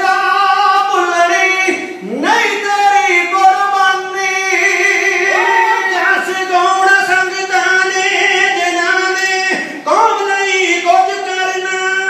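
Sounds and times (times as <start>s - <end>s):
man singing into a microphone: 0.0s - 12.0s.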